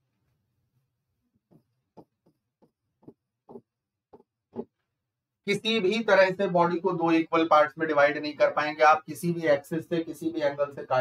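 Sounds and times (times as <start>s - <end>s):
stylus tapping on screen: 1.5s - 4.8s.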